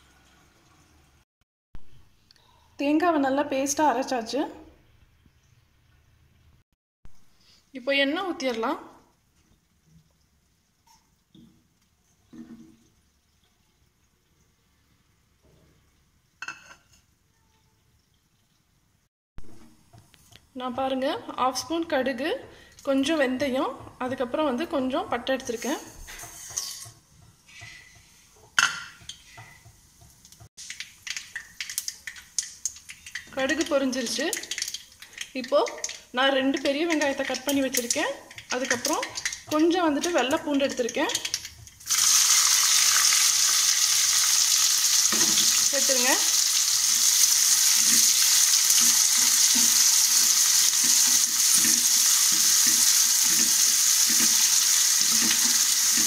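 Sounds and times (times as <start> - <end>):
spices sizzling in hot oil: 20.9 - 56.0
wooden spatula scraping pan: 25.5 - 28.4
mustard seeds popping in oil: 30.3 - 42.0.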